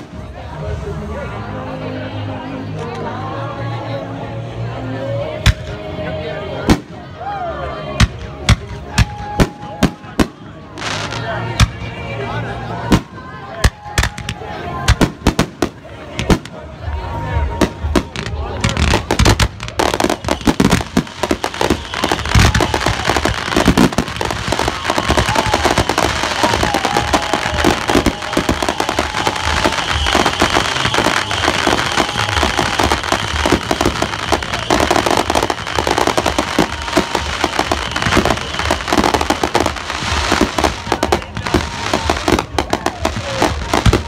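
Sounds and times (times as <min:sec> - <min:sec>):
fireworks thumps pops and crackling: 0:17.6 - 0:44.0.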